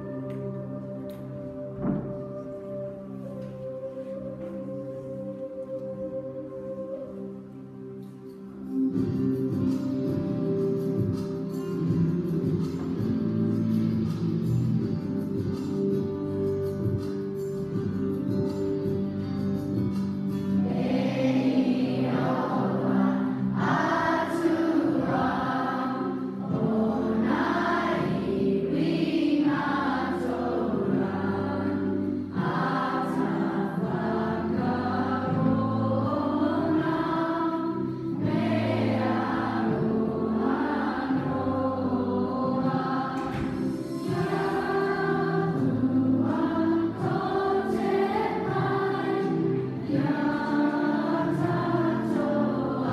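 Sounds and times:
group singing together: 20.2s - 52.9s.

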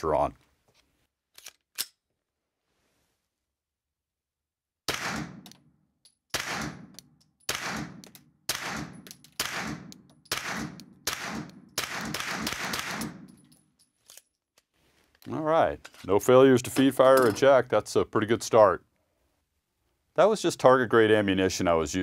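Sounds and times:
gun handling clicks: 1.3s - 2.0s, 5.4s - 8.3s
suppressed pistol shots: 4.9s - 5.5s, 6.3s - 13.4s.

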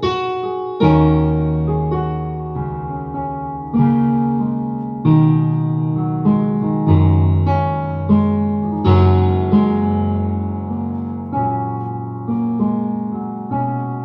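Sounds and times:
digital keyboard chords: 0.0s - 14.0s.

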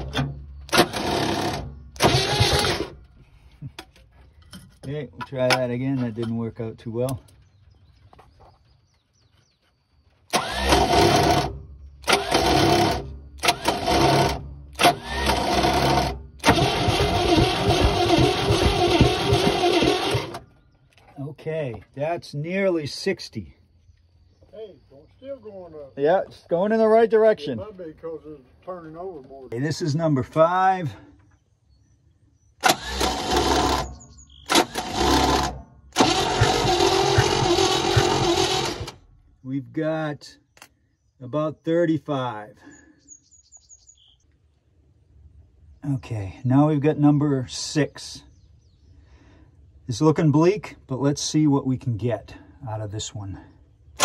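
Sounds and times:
starter cranking engine: 0.0s - 3.0s, 10.3s - 20.5s, 32.6s - 39.1s.

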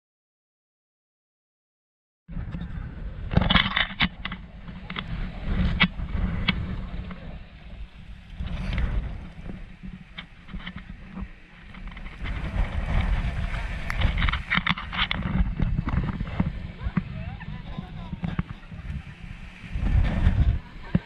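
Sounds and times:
wind buffeting microphone: 2.3s - 21.0s
sharp clicks and rustles: 8.4s - 17.1s.

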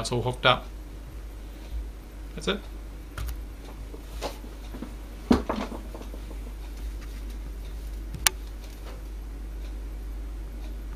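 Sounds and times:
low steady hum: 0.0s - 10.9s
sharp click: 8.2s - 8.5s.

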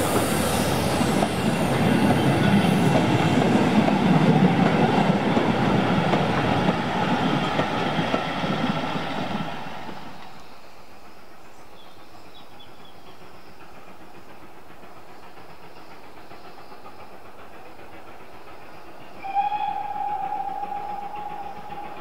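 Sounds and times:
steam locomotive whistle blast: 19.2s - 22.0s.

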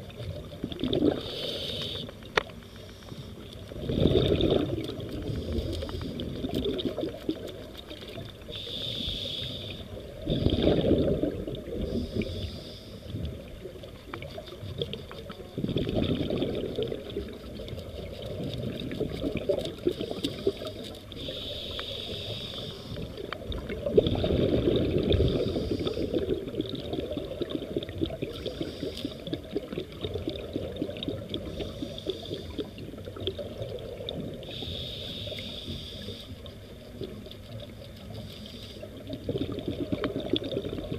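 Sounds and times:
exhaled bubbles gushing: 0.0s - 1.9s, 3.7s - 8.5s, 9.9s - 12.4s, 13.1s - 21.2s, 23.2s - 34.7s, 38.9s - 40.9s
fine underwater crackle: 0.0s - 40.9s
diver inhaling through regulator: 1.0s - 4.6s, 5.2s - 6.5s, 8.5s - 11.1s, 11.8s - 13.3s, 19.8s - 23.3s, 24.4s - 26.3s, 28.5s - 29.4s, 31.4s - 32.9s, 34.4s - 36.6s.

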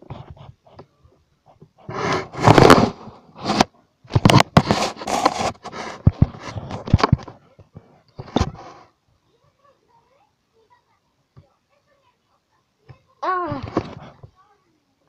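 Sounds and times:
phone handling scraping: 2.0s - 7.3s.

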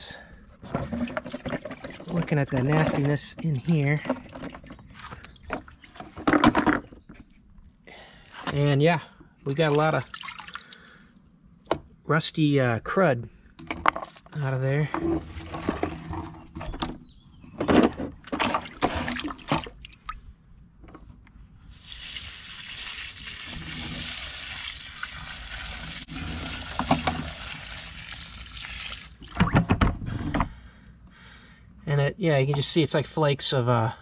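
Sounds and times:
plastic drum knocks and sloshing: 0.6s - 7.2s, 17.6s - 19.8s, 25.0s - 28.4s, 29.1s - 30.6s
water pouring and splashing: 0.8s - 6.3s, 9.5s - 11.0s, 18.4s - 20.2s, 21.7s - 29.7s.

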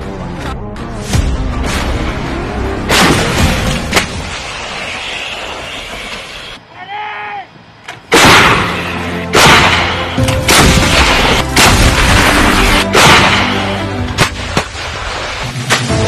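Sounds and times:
background music: 0.0s - 4.2s, 8.1s - 16.0s.

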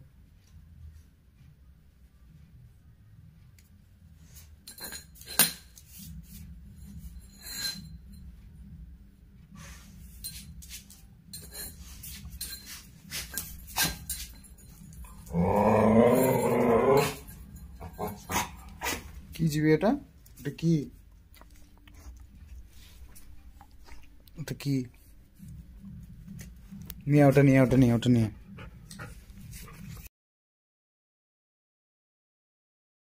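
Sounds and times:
dog growling: 15.1s - 19.2s.

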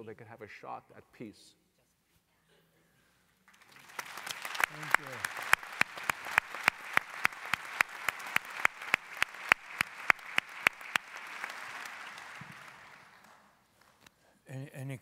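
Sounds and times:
audience applause: 3.5s - 13.6s
close hand claps: 3.5s - 14.1s.

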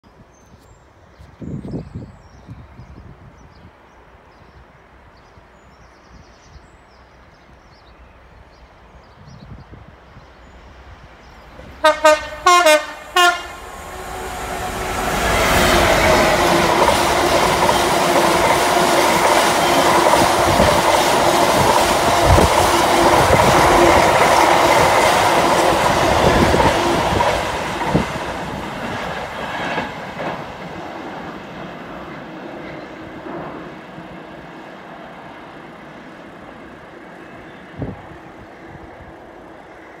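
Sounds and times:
diesel locomotive engine: 10.6s - 40.0s.

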